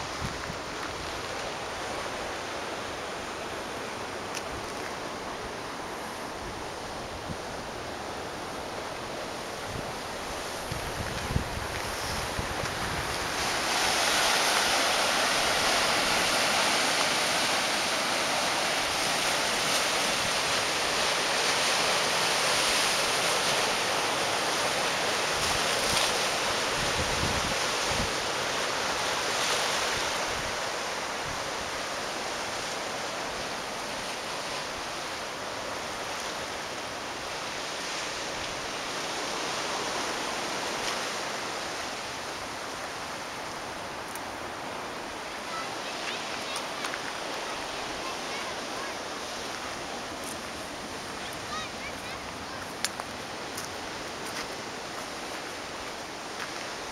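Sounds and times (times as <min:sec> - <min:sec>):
surf washing over rocks: 0:00.0 - 0:56.9
wind buffeting microphone: 0:09.5 - 0:14.7, 0:26.7 - 0:28.3.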